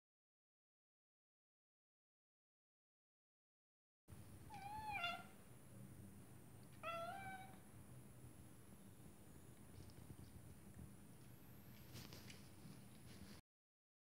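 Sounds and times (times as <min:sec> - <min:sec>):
cat meowing: 0:04.5 - 0:05.4, 0:06.7 - 0:07.6.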